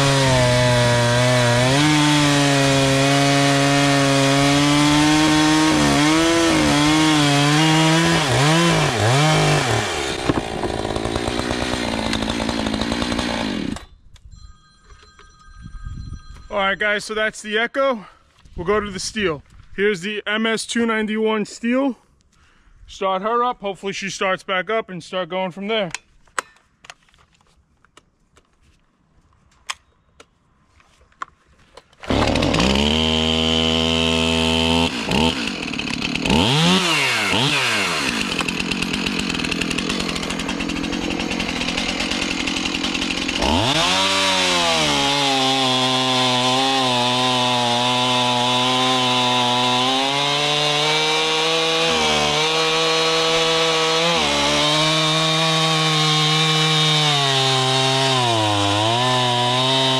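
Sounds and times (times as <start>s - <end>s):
chainsaw revving and cutting: 0.0s - 13.9s, 32.0s - 59.9s.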